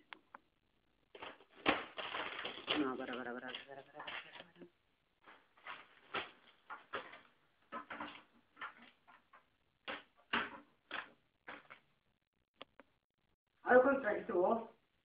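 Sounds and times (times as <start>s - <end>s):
snack packets rustling: 1.1s - 4.6s.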